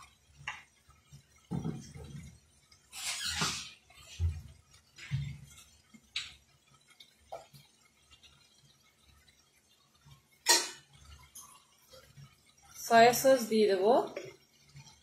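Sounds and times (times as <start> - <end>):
kitchenware clinking: 10.4 - 11.6.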